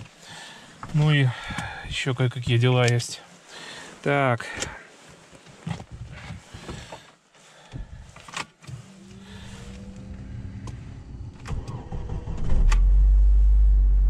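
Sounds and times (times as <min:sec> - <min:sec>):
engine rumble: 0:08.7 - 0:14.0
fuel pump electric whine: 0:08.8 - 0:14.0
starter motor cranking: 0:08.9 - 0:12.8
ignition click: 0:11.4 - 0:12.9.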